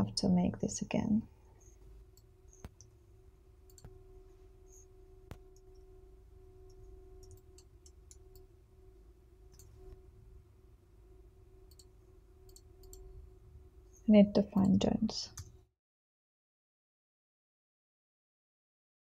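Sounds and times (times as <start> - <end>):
faint steady hum: 0.0 - 15.7
computer mouse clicks: 3.7 - 4.0, 6.7 - 8.5, 11.7 - 11.9, 12.5 - 13.1.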